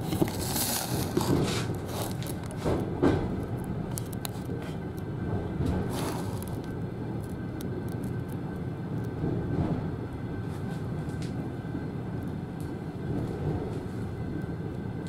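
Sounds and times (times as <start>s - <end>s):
wheels clicking over rail joints: 0.0s - 10.2s
train wheels rumbling on rails: 0.0s - 15.0s.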